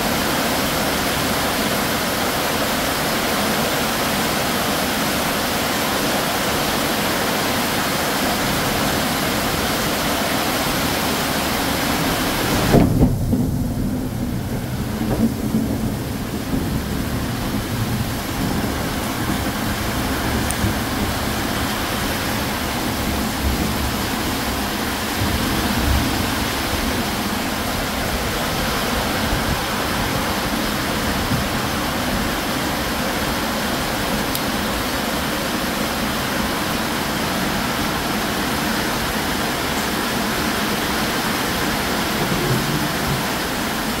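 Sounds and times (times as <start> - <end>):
heavy rain hissing: 0.0 - 44.0
thunder rumbling: 8.4 - 36.2, 40.4 - 44.0.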